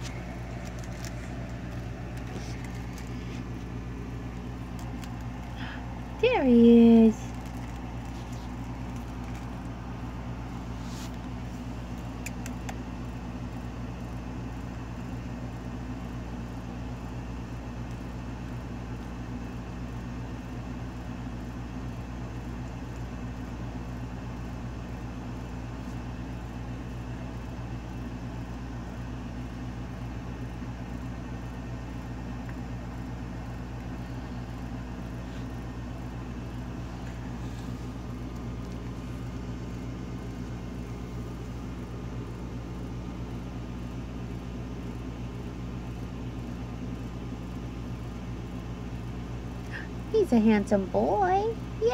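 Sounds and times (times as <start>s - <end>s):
steady low machine hum: 0.0s - 51.9s.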